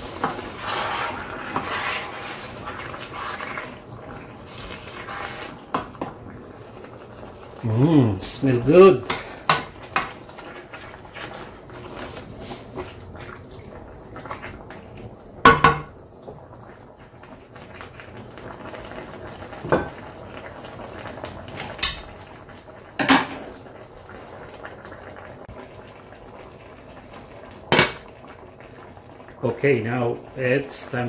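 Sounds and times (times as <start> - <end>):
meat bubbling in a skillet: 0.0 - 31.0
utensils clanking against pan: 21.8 - 22.4.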